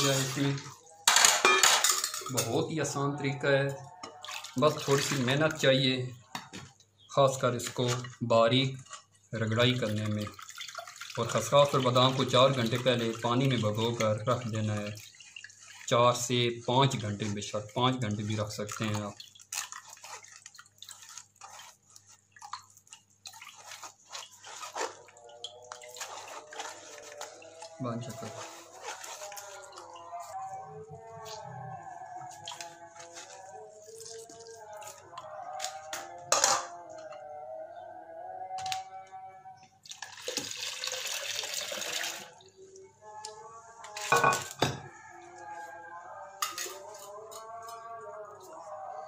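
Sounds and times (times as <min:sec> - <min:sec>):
liquid pouring and splashing: 0:00.0 - 0:01.1, 0:04.0 - 0:05.7, 0:07.3 - 0:35.8, 0:39.8 - 0:42.8
quiet background music: 0:00.0 - 0:49.0
wet paste squelching on strainer: 0:04.2 - 0:05.7, 0:07.4 - 0:35.9.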